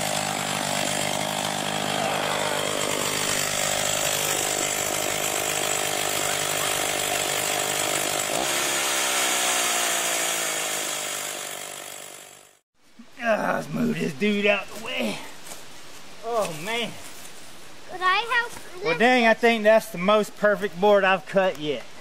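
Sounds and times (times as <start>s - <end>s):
chainsaw cutting log: 0.0s - 12.6s.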